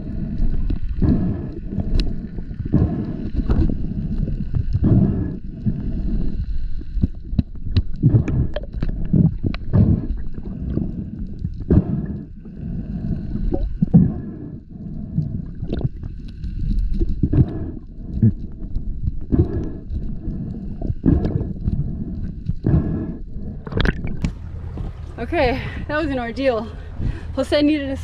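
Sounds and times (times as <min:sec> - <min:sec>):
muffled underwater gurgling: 0:00.0 - 0:28.0
boat motor whine underwater: 0:23.6 - 0:27.8.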